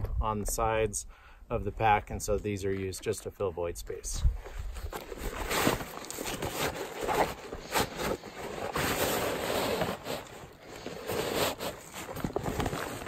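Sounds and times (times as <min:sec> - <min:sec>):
fabric rustling in backpack: 0:04.7 - 0:13.0.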